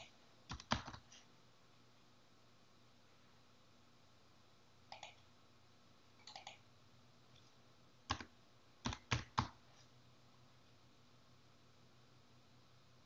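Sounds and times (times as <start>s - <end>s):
computer keyboard keystrokes: 0.0s - 1.1s, 4.9s - 5.2s, 6.2s - 6.6s, 8.1s - 9.6s.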